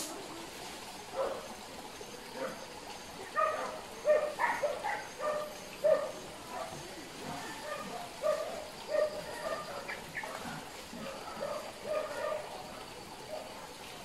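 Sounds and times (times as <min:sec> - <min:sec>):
dogs barking: 0:01.1 - 0:01.5, 0:03.3 - 0:13.5.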